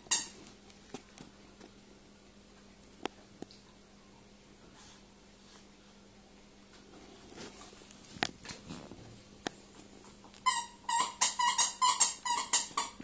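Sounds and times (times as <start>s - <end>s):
squeaky dog toy squeaking: 0.0s - 0.4s, 10.4s - 13.0s.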